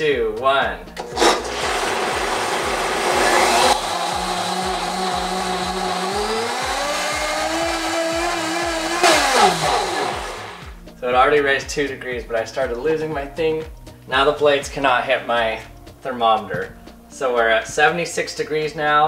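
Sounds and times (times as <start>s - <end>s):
blender motor whine: 1.0s - 10.7s
water churning: 1.0s - 10.7s.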